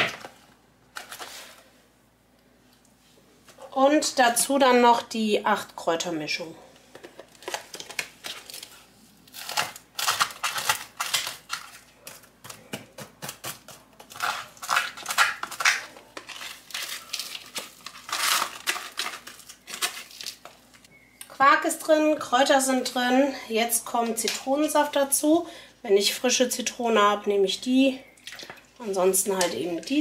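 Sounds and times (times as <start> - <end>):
packet crinkling and rustling: 0.0 - 1.6, 6.9 - 12.7, 13.9 - 20.9.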